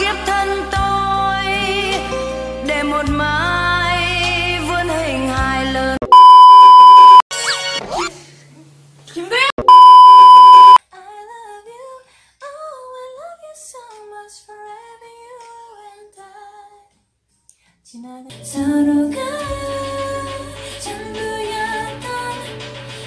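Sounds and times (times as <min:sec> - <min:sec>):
test tone beep: 0:06.0 - 0:07.2, 0:09.6 - 0:10.8
woman singing unaccompanied: 0:10.8 - 0:16.9, 0:17.9 - 0:22.5
woman singing over backing track: 0:17.9 - 0:22.7.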